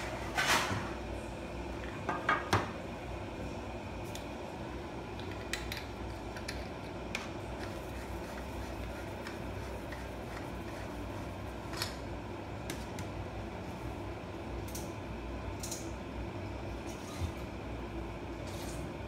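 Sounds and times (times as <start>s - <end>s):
low room hum: 0.0s - 19.0s.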